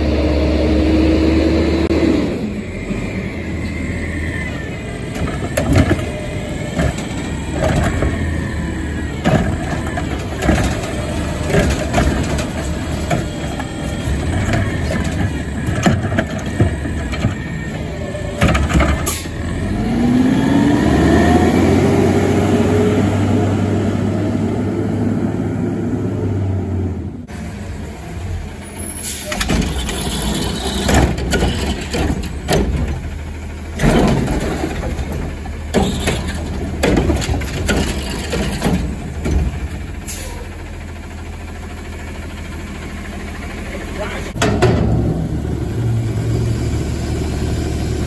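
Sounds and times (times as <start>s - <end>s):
garbage truck engine revving: 0.0s - 48.0s
garbage truck idling: 2.5s - 20.2s, 27.0s - 48.0s
sharp knocks and bangs: 30.8s - 33.1s, 33.8s - 39.9s, 44.4s - 45.4s.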